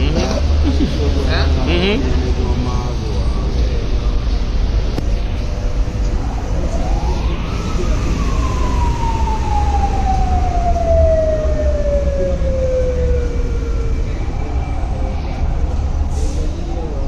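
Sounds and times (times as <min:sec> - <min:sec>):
emergency siren winding: 0:06.6 - 0:14.3.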